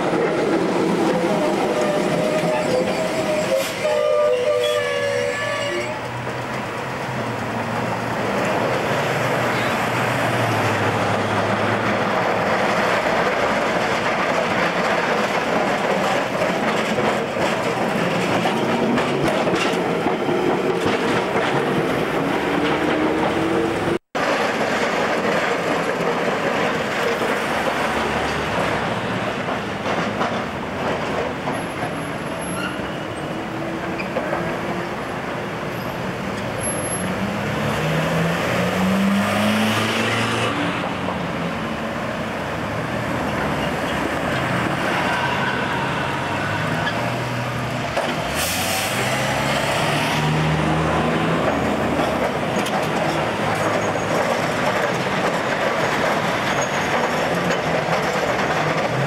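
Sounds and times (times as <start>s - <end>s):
tram rolling across intersection: 0.0s - 59.0s
cars and vans passing: 5.9s - 59.0s
engines revving pulling away: 37.1s - 40.8s, 48.2s - 51.5s.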